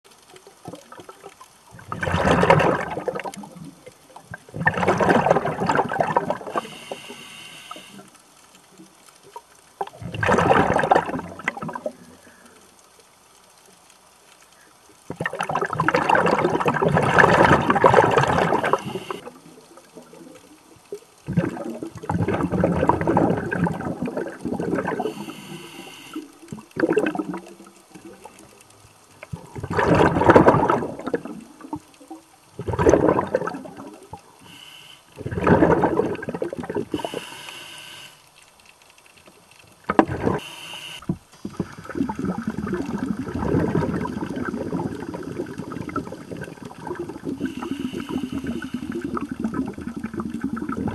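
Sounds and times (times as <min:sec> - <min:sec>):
exhaled bubbles rushing underwater: 0:00.4 - 0:08.0, 0:09.3 - 0:12.3, 0:15.0 - 0:34.6, 0:35.2 - 0:37.2, 0:39.8 - 0:50.9
regulator inhalation hiss: 0:06.5 - 0:08.1, 0:18.6 - 0:19.2, 0:25.0 - 0:26.4, 0:34.4 - 0:35.2, 0:36.9 - 0:38.3, 0:40.3 - 0:42.0, 0:47.4 - 0:49.1.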